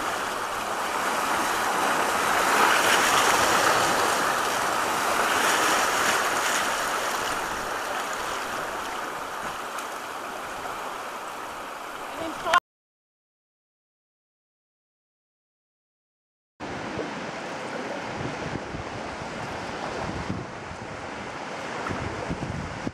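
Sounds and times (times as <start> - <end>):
river rapids rushing: 0.0 - 12.6, 16.6 - 22.3.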